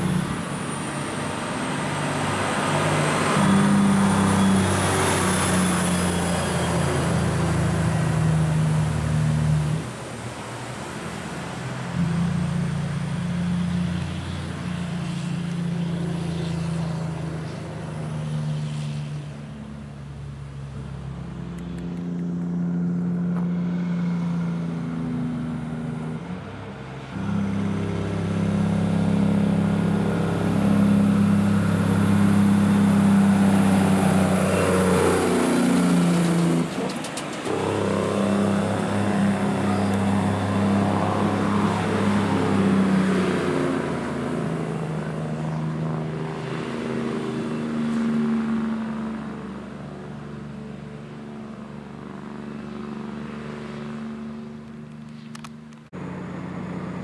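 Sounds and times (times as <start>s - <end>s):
heavy diesel truck climbing: 26.2s - 43.2s.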